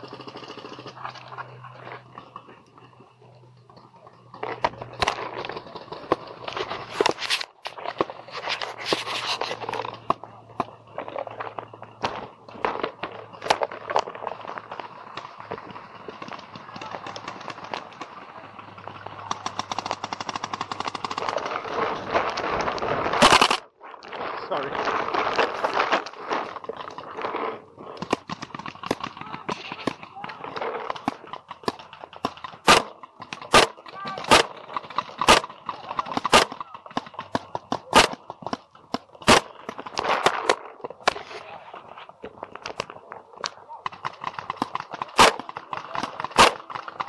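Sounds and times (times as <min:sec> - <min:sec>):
paintball markers firing: 0:04.3 - 0:23.7, 0:25.3 - 0:41.5, 0:42.2 - 0:47.0
paintball marker shots: 0:27.9 - 0:41.4, 0:42.6 - 0:47.0
distant paintball pops: 0:28.0 - 0:41.3, 0:42.6 - 0:47.0.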